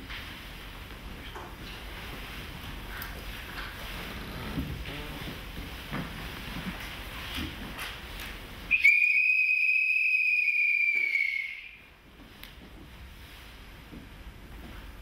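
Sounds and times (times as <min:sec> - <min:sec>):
faint room noise: 0:00.0 - 0:15.0
whistle-like high tone: 0:08.7 - 0:11.9.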